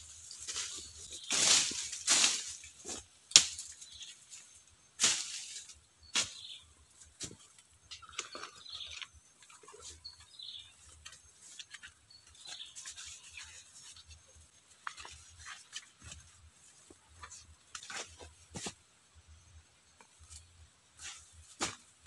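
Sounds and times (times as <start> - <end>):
birds chirping: 0.0 - 1.9, 5.7 - 14.5
dry leaves crackling and rustling: 0.0 - 6.6, 9.6 - 18.3.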